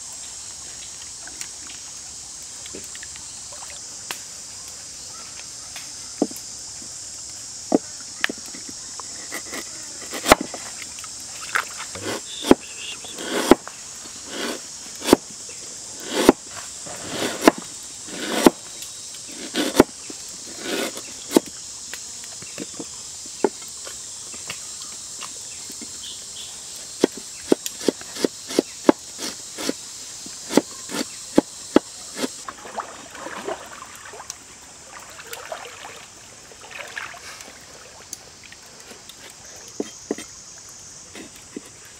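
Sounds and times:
high insect drone: 0:00.0 - 0:41.9
knife chopping on wooden board: 0:09.3 - 0:10.5, 0:13.2 - 0:13.6, 0:14.3 - 0:15.2, 0:16.0 - 0:16.4, 0:17.1 - 0:18.6, 0:19.4 - 0:19.9, 0:20.6 - 0:21.5, 0:27.0 - 0:29.8, 0:30.5 - 0:32.4.

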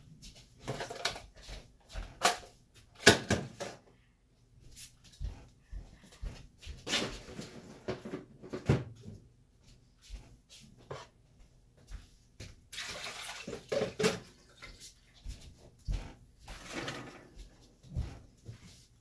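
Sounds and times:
knocks and bumps in kitchen: 0:00.6 - 0:03.9, 0:05.2 - 0:09.3, 0:15.4 - 0:18.6.

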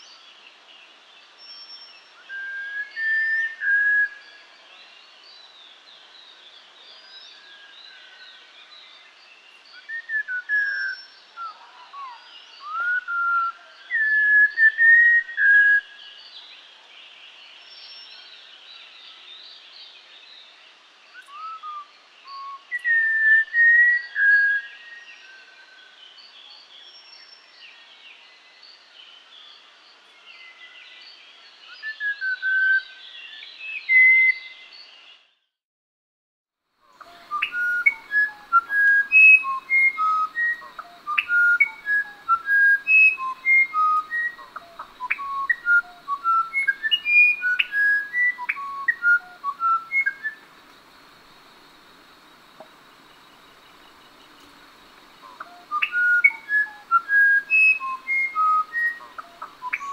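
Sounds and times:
bird whistled song: 0:01.4 - 0:04.5, 0:09.6 - 0:16.3, 0:21.1 - 0:27.8, 0:30.3 - 0:35.4, 0:37.0 - 0:59.9
thrush whistled song: 0:01.4 - 0:04.6, 0:09.6 - 0:16.7, 0:21.1 - 0:35.6, 0:36.9 - 0:59.9
faint high bird chirping: 0:36.9 - 0:59.9.

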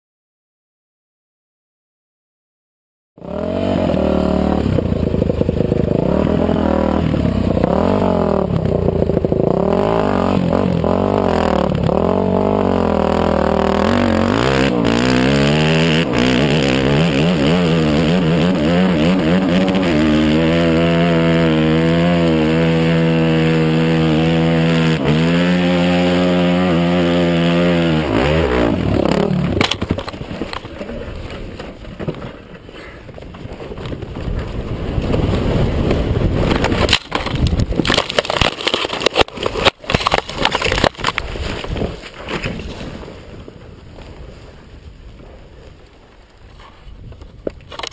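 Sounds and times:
dirt bike engine revving: 0:03.2 - 0:30.6.

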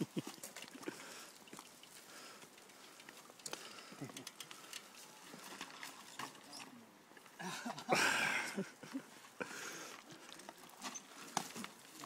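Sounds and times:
bike tyres on loose dirt: 0:00.0 - 0:12.0
clicks and knocks from bike: 0:00.2 - 0:06.8.

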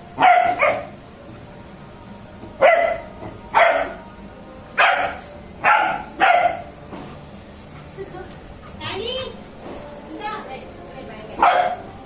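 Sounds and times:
dog barking: 0:00.2 - 0:01.0, 0:02.6 - 0:04.0, 0:04.8 - 0:06.7, 0:11.4 - 0:11.9.

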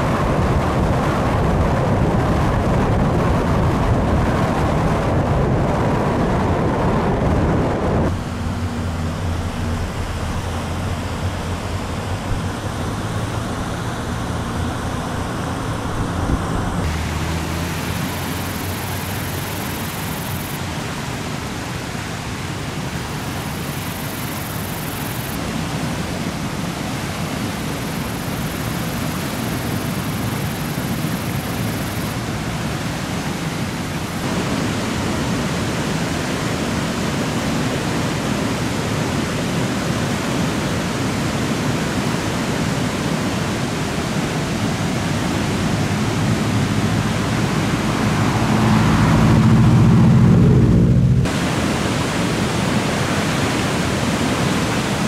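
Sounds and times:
floodwater rushing: 0:00.0 - 0:55.0.

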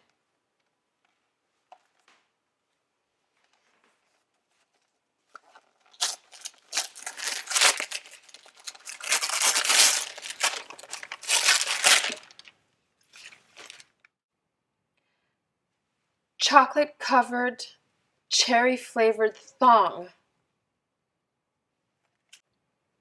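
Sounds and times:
wrapping paper ripping and rustling: 0:04.6 - 0:14.0.

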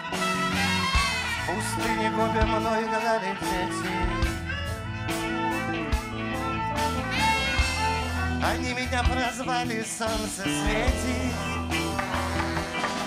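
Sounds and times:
upright double bass: 0:00.0 - 0:02.8, 0:03.4 - 0:13.0
trumpet holding long notes: 0:00.0 - 0:08.6
drums: 0:00.0 - 0:13.0
electric guitar: 0:00.0 - 0:13.0.

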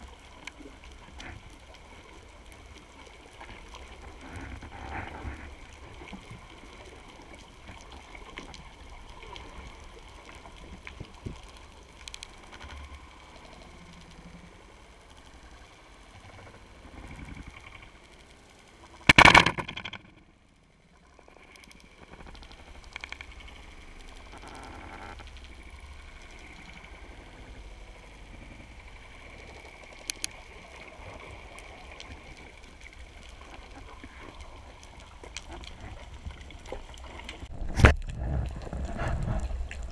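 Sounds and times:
underwater water hiss and gurgle: 0:00.0 - 0:19.2, 0:19.8 - 0:39.9
speargun firing underwater: 0:19.1 - 0:20.2.

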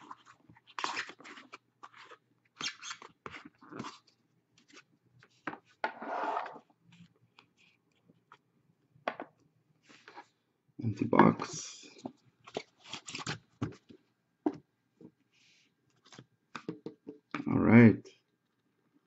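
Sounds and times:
cards rustling and scraping: 0:00.0 - 0:08.4, 0:11.9 - 0:14.0.

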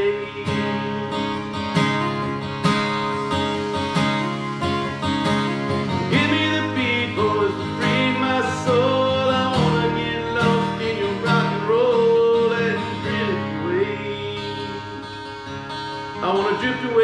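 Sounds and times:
man singing: 0:00.0 - 0:01.2, 0:06.0 - 0:15.4, 0:16.1 - 0:17.0
acoustic guitar strumming chords: 0:00.0 - 0:17.0.

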